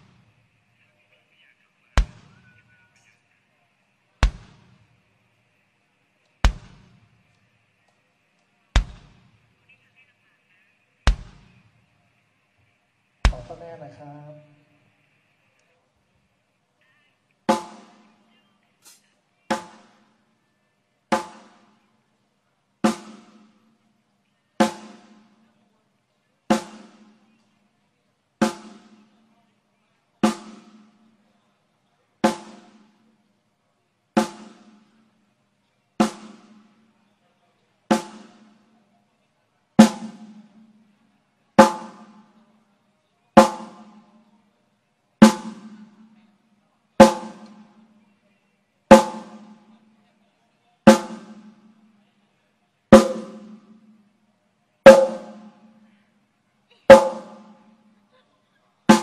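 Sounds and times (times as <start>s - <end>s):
drum hits ringing: 4.2s - 4.7s, 6.4s - 6.9s, 8.8s - 9.2s, 11.1s - 11.5s, 13.3s - 13.6s, 52.9s - 53.7s, 54.9s - 55.6s, 56.9s - 57.6s.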